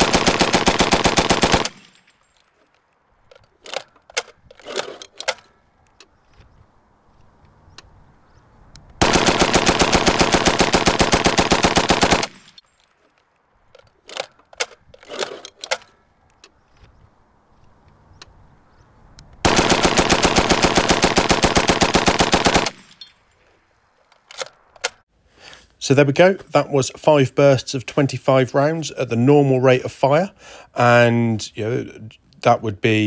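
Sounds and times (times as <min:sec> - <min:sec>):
machine gun firing bursts: 0:00.0 - 0:01.8, 0:09.0 - 0:12.4, 0:19.4 - 0:22.8.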